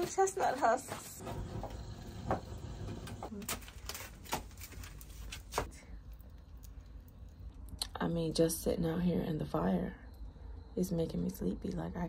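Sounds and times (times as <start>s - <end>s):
low steady fire rumble: 1.2s - 3.8s
fire crackling and popping: 1.2s - 7.7s.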